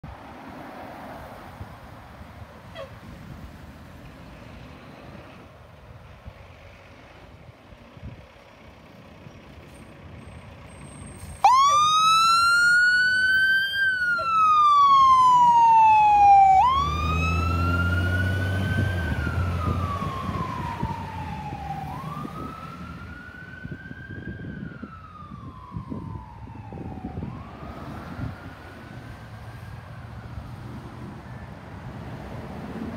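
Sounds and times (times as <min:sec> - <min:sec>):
truck engine driving past: 0:03.0 - 0:23.6
fire engine siren wailing: 0:11.2 - 0:31.6.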